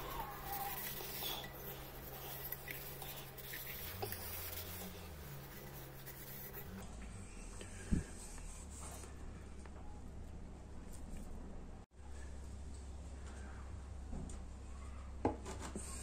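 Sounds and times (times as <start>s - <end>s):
cloth rubbing copper bowl: 0.0s - 6.8s.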